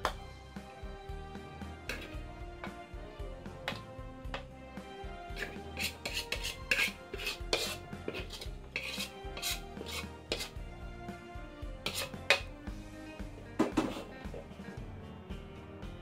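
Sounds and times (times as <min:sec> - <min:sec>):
background music: 0:00.0 - 0:16.0
metal spatula scraping wok: 0:01.8 - 0:02.2, 0:05.3 - 0:10.6, 0:11.8 - 0:12.6, 0:13.6 - 0:14.8.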